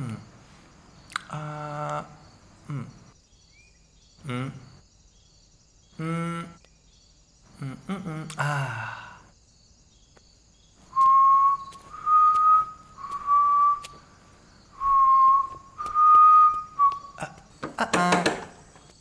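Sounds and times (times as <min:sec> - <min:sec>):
person whistling: 0:10.9 - 0:14.0, 0:14.8 - 0:17.3.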